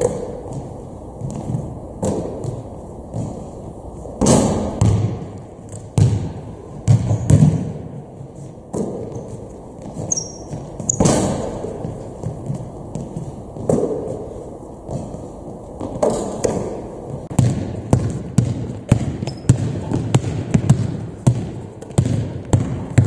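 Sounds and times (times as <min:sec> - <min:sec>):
basketballs bouncing on hardwood floor: 0:00.0 - 0:03.5, 0:04.2 - 0:08.0, 0:08.7 - 0:14.1, 0:15.8 - 0:23.0
sneaker squeak: 0:07.0 - 0:07.5, 0:09.1 - 0:11.5, 0:19.2 - 0:19.6.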